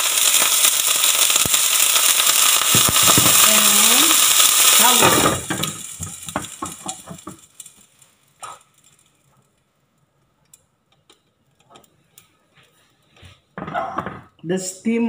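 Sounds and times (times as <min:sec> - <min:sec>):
water sizzling in a frying pan: 0:00.0 - 0:09.6.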